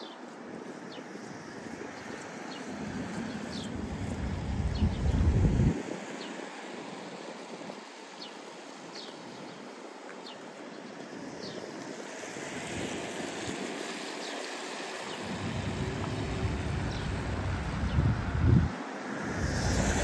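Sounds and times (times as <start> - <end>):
steady rushing noise: 0.0 - 20.0
low rumble: 15.2 - 20.0.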